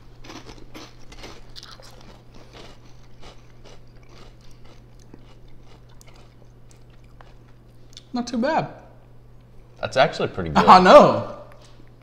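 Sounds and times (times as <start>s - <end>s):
steady low hum: 0.0s - 12.0s
crunchy snack chewing: 0.1s - 8.1s.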